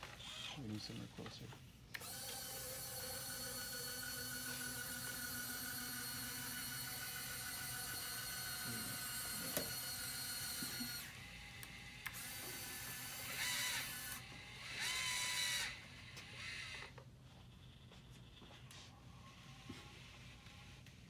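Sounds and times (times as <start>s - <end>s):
small electric motors whining: 0.1s - 0.6s, 1.9s - 17.0s.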